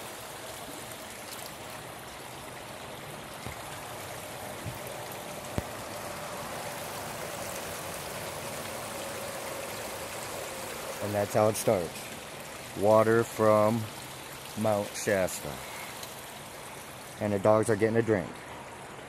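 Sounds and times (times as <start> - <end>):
stream running over rocks: 0.0 - 19.0.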